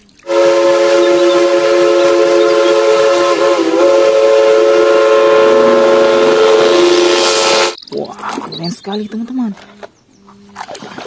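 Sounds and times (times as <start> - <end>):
steam locomotive whistle: 0.2 - 7.8.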